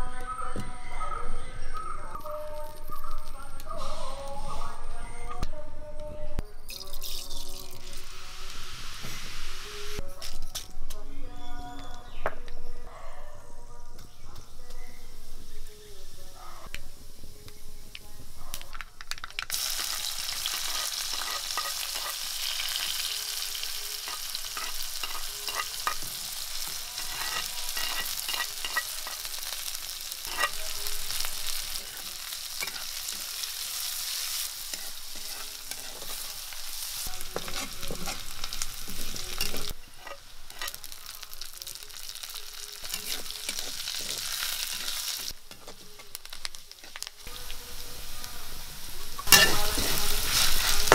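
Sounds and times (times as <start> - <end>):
loud sizzle of frying: 6.8 - 10.0, 16.6 - 50.9
mustard seeds popping in oil: 17.5 - 31.7
steel spatula clattering on pan: 24.1 - 26.1, 27.0 - 29.5, 30.2 - 30.8.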